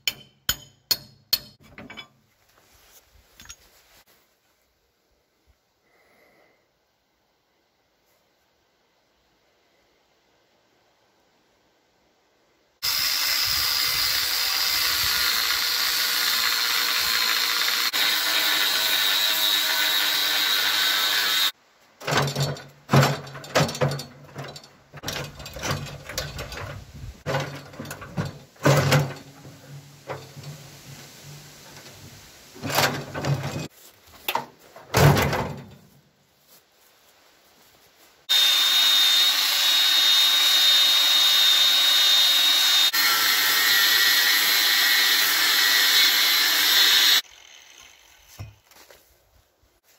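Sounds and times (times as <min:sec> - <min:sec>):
metal clanks and knocks: 0:00.0 - 0:02.2, 0:22.0 - 0:33.7, 0:34.3 - 0:35.9
loud machine tool noise: 0:12.8 - 0:21.5, 0:38.3 - 0:48.4
sheet metal dropped: 0:22.0 - 0:31.9.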